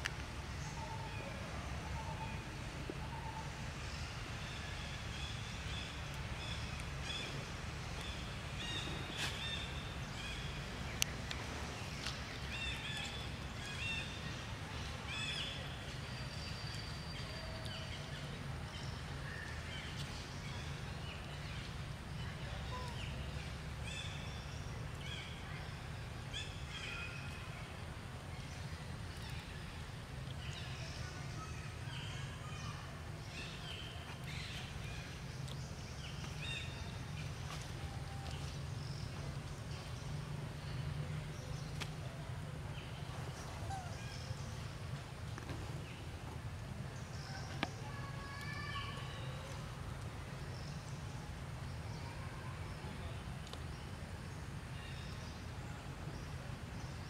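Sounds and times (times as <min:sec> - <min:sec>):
small birds chirping: 0:28.2 - 0:46.2.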